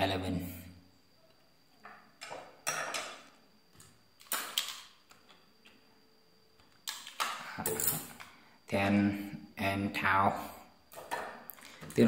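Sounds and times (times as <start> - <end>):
circuit board handling clicks and rustles: 3.8 - 5.8, 6.6 - 8.4.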